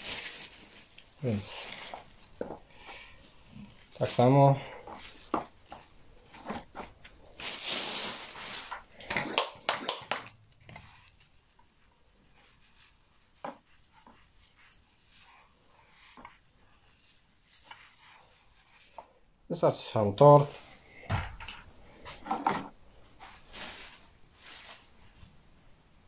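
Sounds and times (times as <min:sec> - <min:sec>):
dry peat rustling and crunching: 0:00.0 - 0:03.1.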